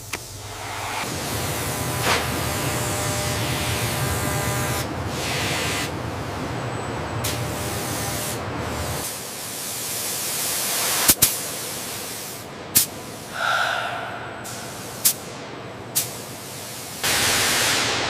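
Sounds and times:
spray gun hissing: 0:09.3 - 0:15.3
low rushing noise: 0:13.3 - 0:15.8.

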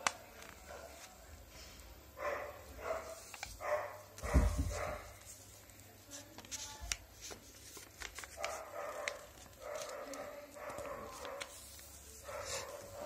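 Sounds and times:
paper crackling as folded: 0:00.0 - 0:01.3, 0:02.8 - 0:13.0
dog barking in background: 0:02.2 - 0:05.2, 0:08.3 - 0:13.0.

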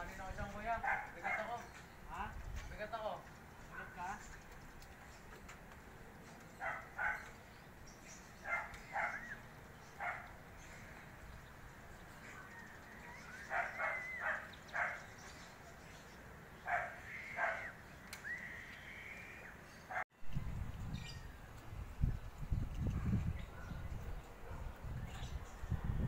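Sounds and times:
dog barking: 0:00.8 - 0:01.5, 0:06.6 - 0:07.3, 0:08.5 - 0:09.3, 0:10.0 - 0:10.3, 0:13.5 - 0:15.0, 0:16.7 - 0:17.7.

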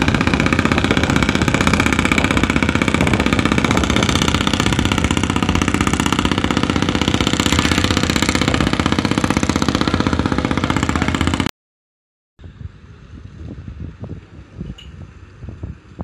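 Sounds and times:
boat engine running: 0:00.0 - 0:11.5
faint wind: 0:00.0 - 0:11.5, 0:12.4 - 0:16.0.

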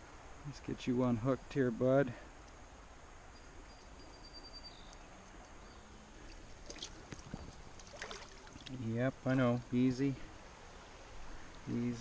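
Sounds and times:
faint steady hiss: 0:00.0 - 0:12.0
thin high whistle-like tone: 0:03.3 - 0:05.0.

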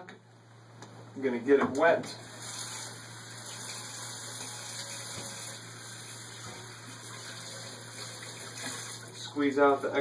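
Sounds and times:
tap water running into sink: 0:02.4 - 0:09.2.

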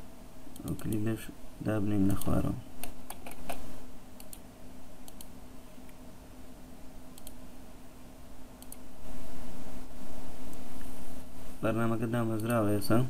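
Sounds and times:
steady low hum: 0:00.0 - 0:13.0
computer mouse and keyboard clicks: 0:02.1 - 0:03.6.

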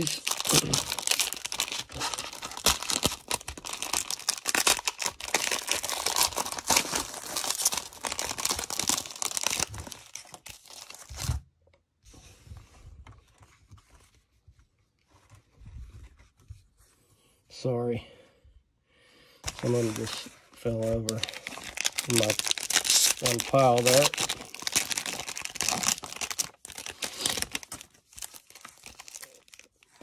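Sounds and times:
cellophane wrapper tearing and crinkling: 0:00.0 - 0:11.4, 0:19.4 - 0:30.0.

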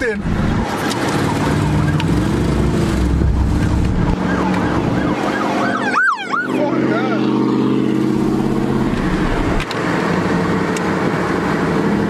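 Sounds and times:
engine running inside cab: 0:00.3 - 0:05.3, 0:06.4 - 0:12.0
police siren yelping: 0:00.5 - 0:07.8.

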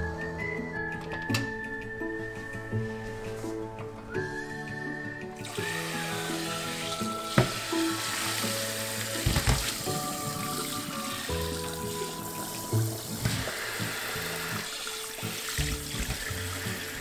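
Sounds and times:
water poured into a strainer: 0:05.4 - 0:17.0
tap running into a metal sink: 0:07.3 - 0:07.8, 0:15.6 - 0:16.4.

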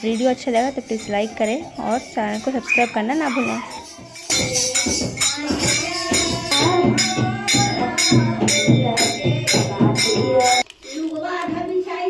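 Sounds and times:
steady percussion beat: 0:00.0 - 0:11.7
devotional singing: 0:02.6 - 0:12.0.

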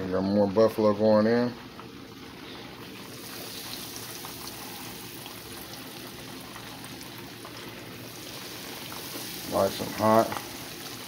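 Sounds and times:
fish deep-frying in oil: 0:00.0 - 0:11.0.

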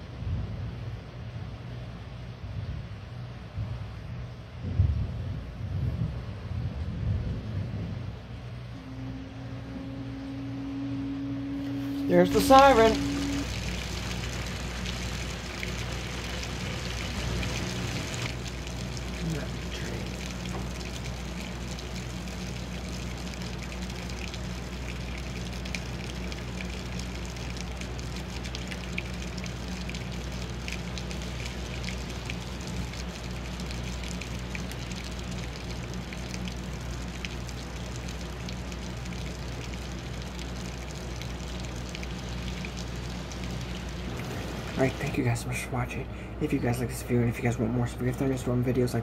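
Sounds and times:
low hum: 0:00.0 - 0:49.0
heavy rain falling: 0:09.0 - 0:45.4
raindrops ticking on window glass: 0:12.1 - 0:45.2.

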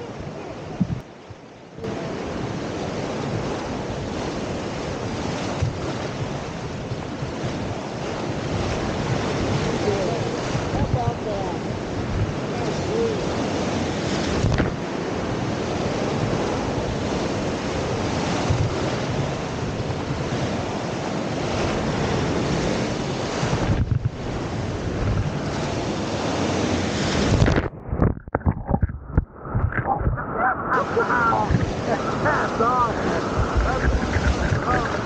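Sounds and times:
wind buffeting microphone: 0:00.0 - 0:35.0
muffled underwater sloshing: 0:23.5 - 0:35.0
whitewater rapids rushing: 0:29.4 - 0:35.0.

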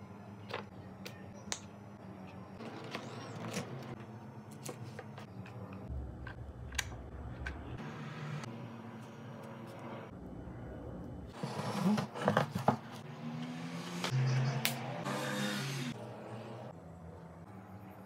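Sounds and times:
low hum: 0:05.2 - 0:11.3.

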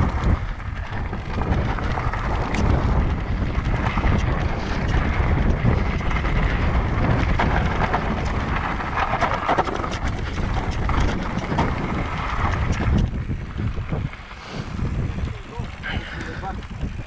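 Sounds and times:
bike clicks and rattles: 0:00.0 - 0:17.0
wind buffeting microphone: 0:00.0 - 0:17.0.

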